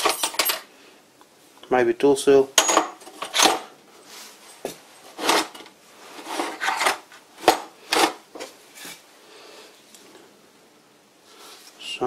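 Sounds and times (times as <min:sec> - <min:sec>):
metal parts rattling in plastic tub: 0:00.0 - 0:00.7.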